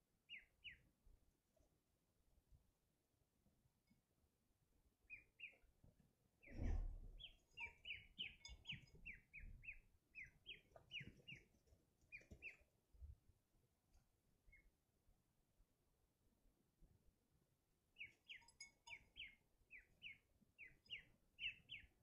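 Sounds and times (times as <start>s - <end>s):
ducklings peeping: 5.1s - 5.6s, 7.2s - 11.4s.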